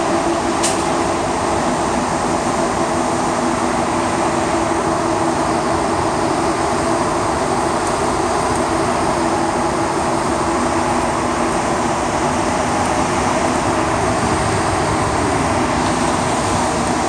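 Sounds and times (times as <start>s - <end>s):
train running through a tunnel: 0.0s - 17.0s.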